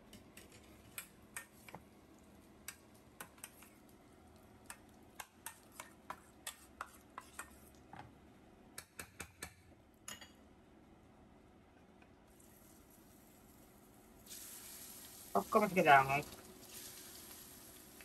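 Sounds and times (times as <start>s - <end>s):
hot oil spitting and popping: 2.6s - 7.9s, 14.2s - 18.0s.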